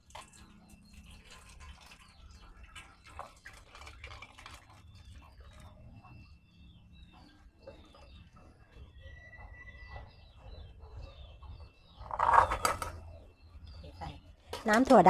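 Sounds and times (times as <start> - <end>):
water trickling through metal strainer: 0.0 - 5.6.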